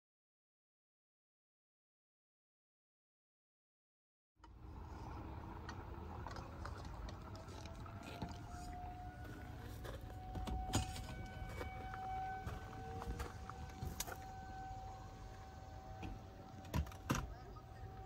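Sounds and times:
distant warning siren: 4.4s - 18.0s.

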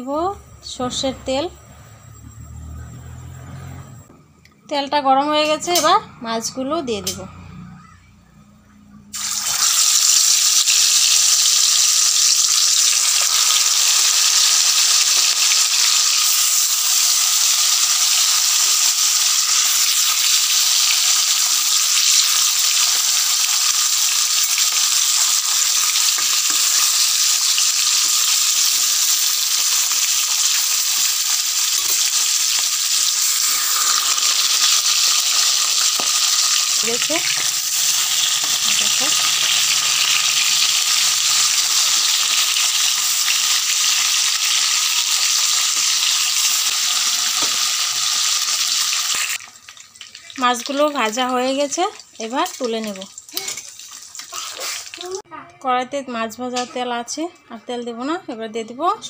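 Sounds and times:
fish frying in oil: 9.2s - 55.2s.

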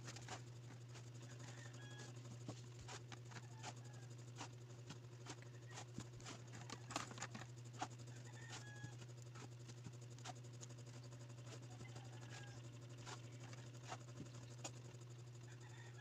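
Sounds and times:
steady low hum: 0.0s - 16.0s
small parts clicking and rustling: 5.3s - 7.5s.

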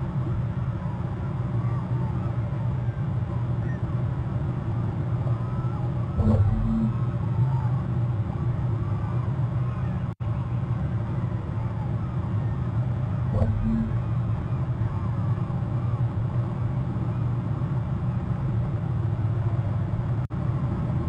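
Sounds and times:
low outdoor rumble and hum: 0.0s - 21.0s.

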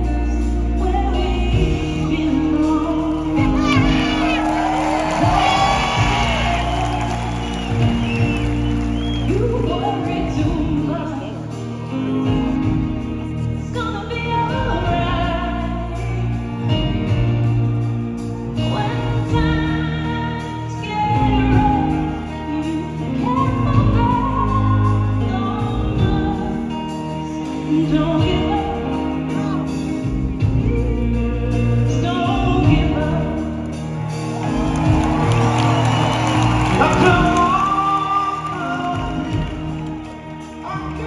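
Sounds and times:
person singing: 0.0s - 35.8s, 36.4s - 41.0s
live band playing pop ballad: 0.0s - 41.0s.

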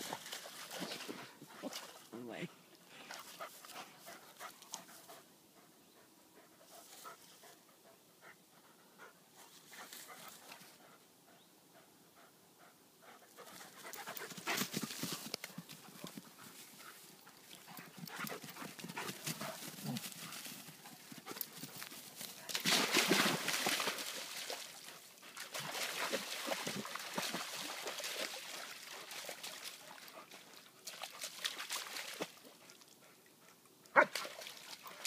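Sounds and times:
dogs panting: 2.9s - 22.4s.

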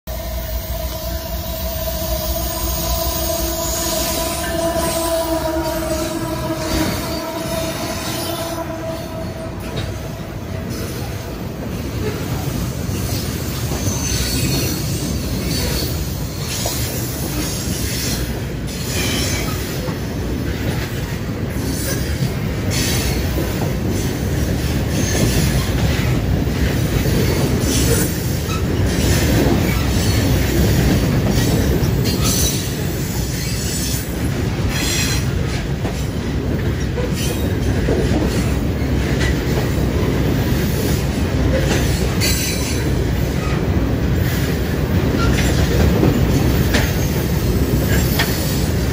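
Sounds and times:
train wheels rumbling on rails: 0.1s - 48.9s.

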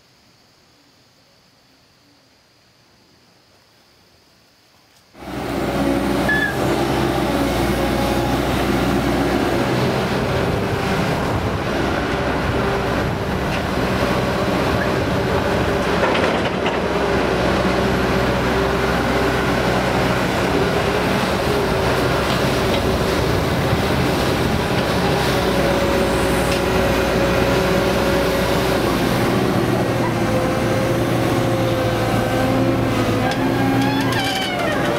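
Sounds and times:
excavator diesel engine running: 5.2s - 34.9s.

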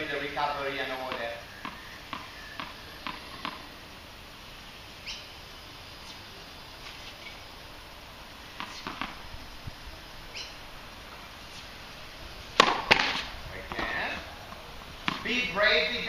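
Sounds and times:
tennis ball bouncing on hard court: 1.1s - 3.6s, 8.6s - 9.2s, 12.6s - 14.2s, 15.0s - 16.0s
bird chirping: 1.4s - 3.3s, 5.0s - 5.4s, 10.3s - 10.6s.

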